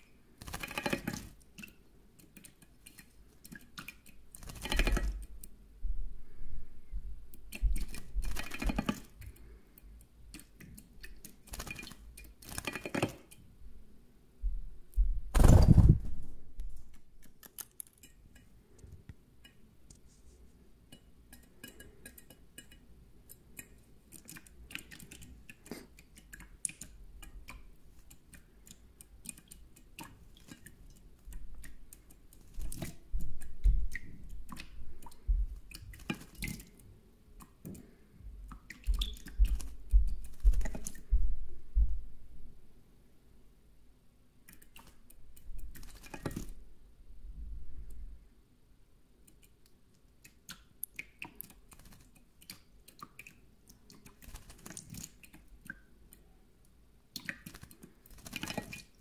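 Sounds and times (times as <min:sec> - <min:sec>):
small ticks and drips: 0:00.0 - 0:05.6, 0:07.3 - 0:13.5, 0:16.9 - 0:41.1, 0:44.4 - 0:46.6, 0:49.2 - 0:59.0
bird splashing in water: 0:54.0 - 0:55.3, 0:57.2 - 0:59.0.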